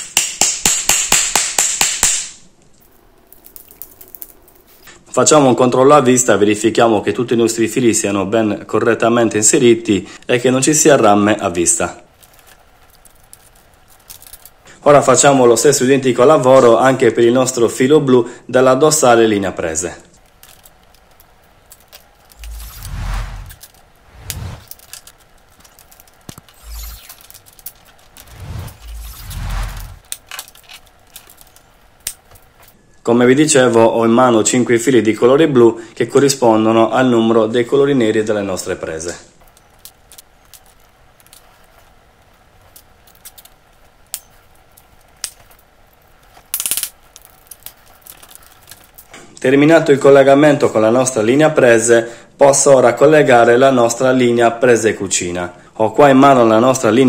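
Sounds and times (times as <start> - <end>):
wires rustling against plastic box: 12.1 - 14.7, 20.2 - 22.8, 44.8 - 49.2.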